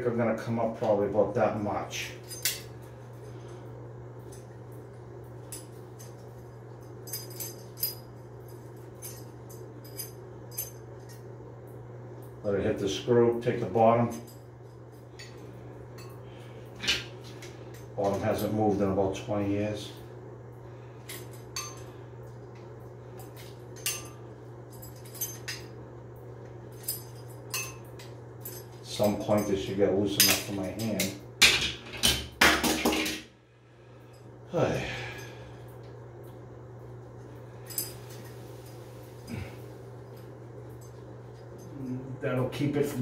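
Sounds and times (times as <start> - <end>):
steady low hum: 0.0 - 43.0
pliers clinking on metal: 2.2 - 2.7, 23.2 - 25.7.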